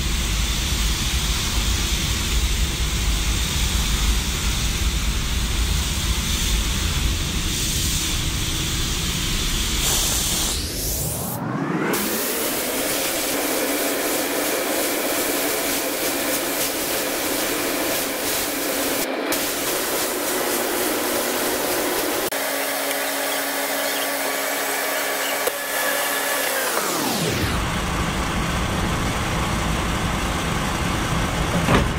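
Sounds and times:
mechanical hum: 0.0s - 31.9s
spray gun air hissing: 0.2s - 10.7s, 12.0s - 26.9s.

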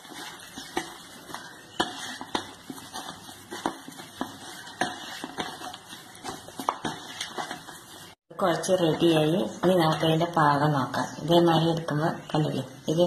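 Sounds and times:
hand squishing potato mixture: 0.0s - 10.6s.

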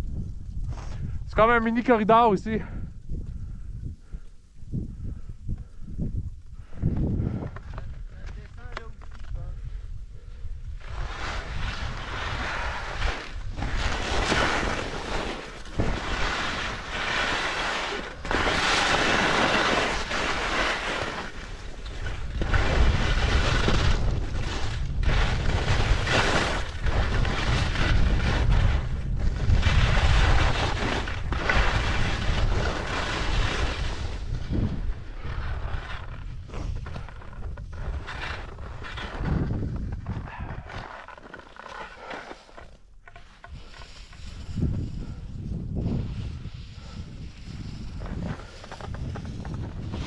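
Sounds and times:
wind buffeting microphone: 0.0s - 17.3s, 18.0s - 40.8s, 43.5s - 50.0s
skis scraping on snow: 10.7s - 50.0s.

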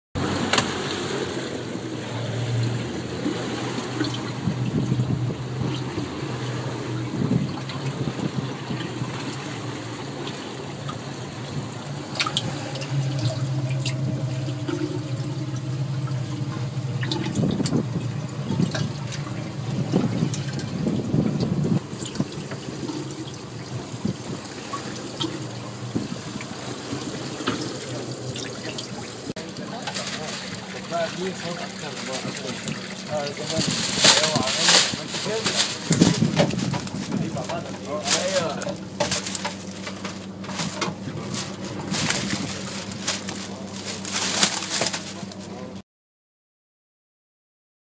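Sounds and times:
steady low hum: 0.2s - 45.8s
water sloshing in a tub: 0.2s - 45.8s.

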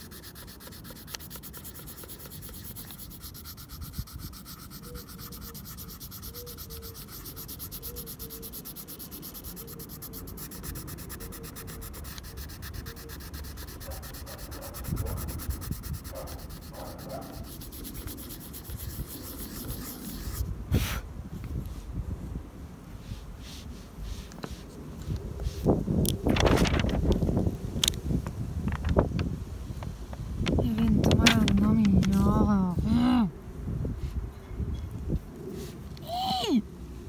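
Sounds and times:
pencil scratching on paper: 0.0s - 20.5s.

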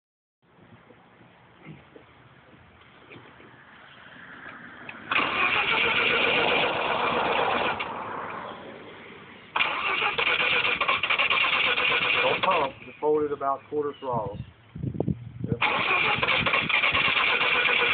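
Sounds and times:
rotary engine starting and running: 4.9s - 8.2s, 9.6s - 12.8s, 15.6s - 17.9s.

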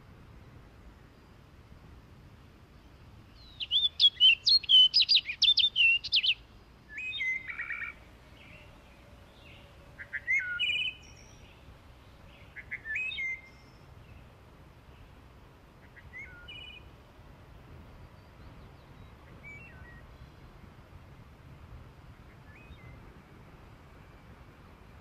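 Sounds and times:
faint steady hiss: 0.0s - 25.0s
birds singing: 2.8s - 17.0s, 17.8s - 20.4s, 22.3s - 23.0s.

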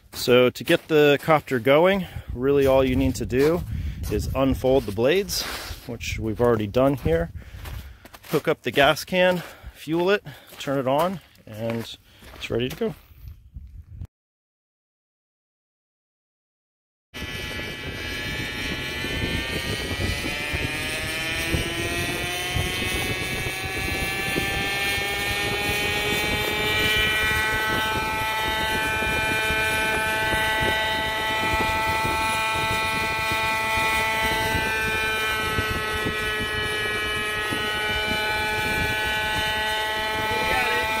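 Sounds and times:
drone helicopter rotor whine: 17.2s - 41.0s.

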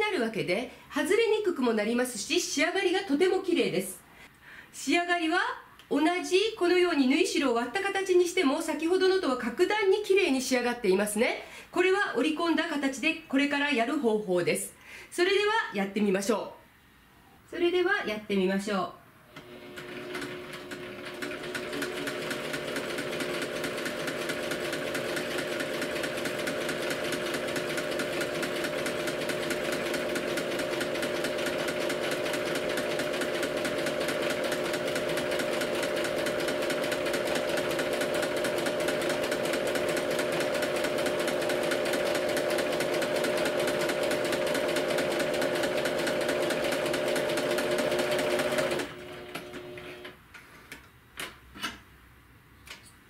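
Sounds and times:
sewing machine stitching: 19.4s - 50.2s.

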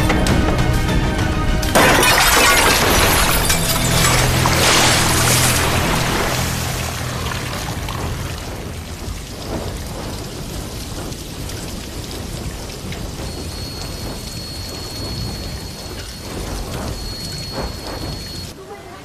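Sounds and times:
water pouring and splashing: 1.6s - 18.6s
low rumble: 2.7s - 18.5s
thin high tone: 13.2s - 18.5s.

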